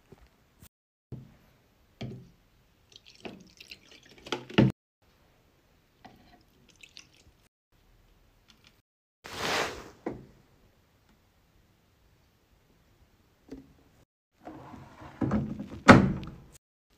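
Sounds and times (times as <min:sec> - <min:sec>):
liquid detergent pouring and splashing: 0:02.9 - 0:04.7, 0:06.4 - 0:07.5.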